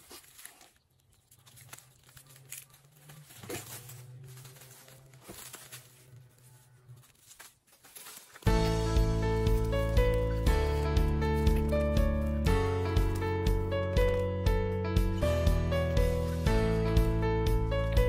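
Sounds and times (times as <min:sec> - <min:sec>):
rustle of dry stalks and plastic: 0:00.0 - 0:13.3
music: 0:08.4 - 0:18.0.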